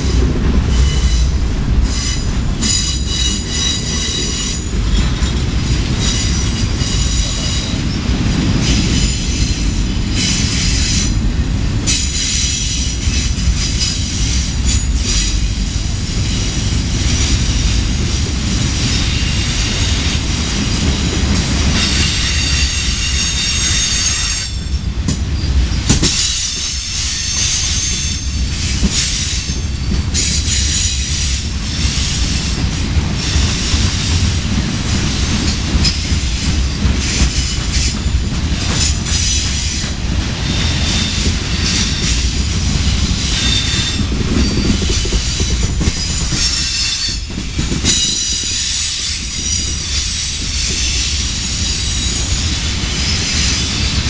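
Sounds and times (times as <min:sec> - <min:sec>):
freight train cars rumbling: 0:00.0 - 0:54.0
high-pitched wheel squeal: 0:21.8 - 0:24.6.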